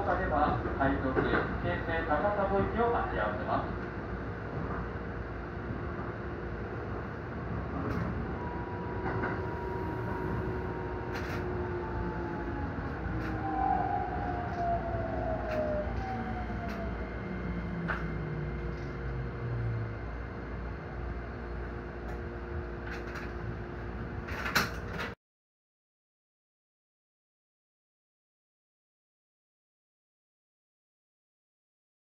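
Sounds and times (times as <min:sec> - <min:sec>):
steady hum: 0:01.8 - 0:24.5
train motors whining down: 0:07.6 - 0:22.2
sharp clicks from train wheels: 0:07.8 - 0:08.2, 0:09.0 - 0:09.5, 0:11.1 - 0:11.8, 0:15.4 - 0:16.9, 0:17.8 - 0:19.0, 0:22.0 - 0:23.5.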